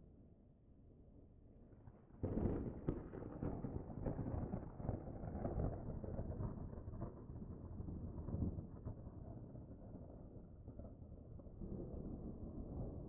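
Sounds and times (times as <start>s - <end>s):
low rumble of pyroclastic flow: 1.6s - 13.0s
crackle of tumbling rock: 2.2s - 13.0s.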